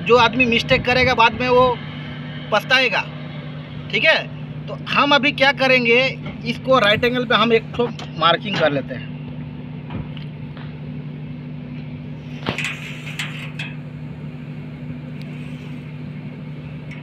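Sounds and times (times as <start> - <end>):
low machine hum: 0.0 - 17.0
steel square scraping steel plate: 12.3 - 13.8.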